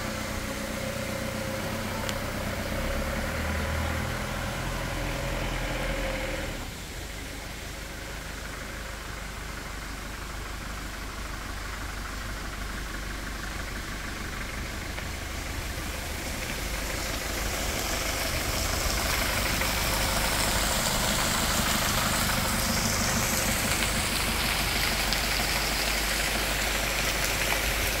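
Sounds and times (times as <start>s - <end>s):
low rumble: 13.9s - 28.0s
stream water rushing over rock: 14.5s - 28.0s.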